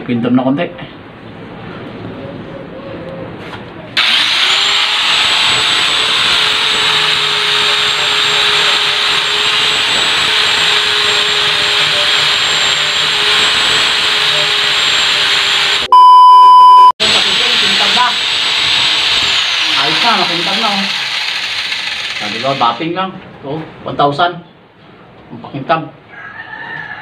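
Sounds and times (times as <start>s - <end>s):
electric grinder whining: 4.0s - 15.9s, 17.0s - 22.8s
loud electronic beep: 15.9s - 17.0s.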